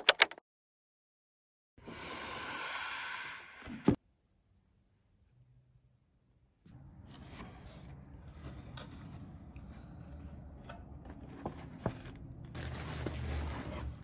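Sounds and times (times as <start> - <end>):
paper and tissue rustling: 11.2 - 14.0.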